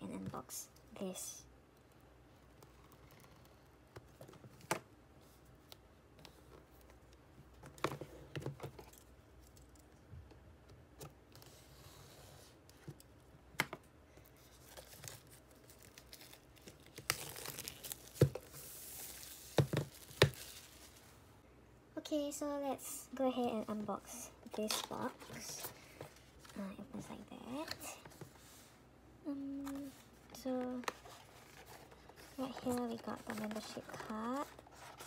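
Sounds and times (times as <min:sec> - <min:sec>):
shrink wrap tearing and crinkling: 0:14.6 - 0:18.3.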